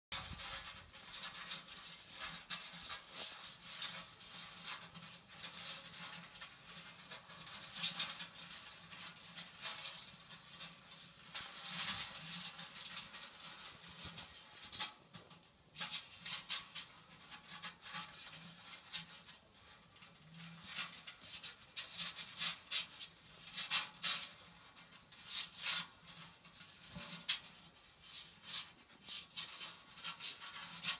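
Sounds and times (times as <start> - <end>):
kittens scrabbling in metal basin: 0.1 - 6.3.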